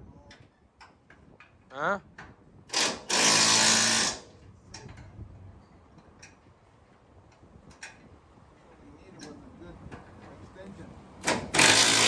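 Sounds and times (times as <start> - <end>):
power tool buzzing: 2.7 - 4.3, 11.3 - 12.0.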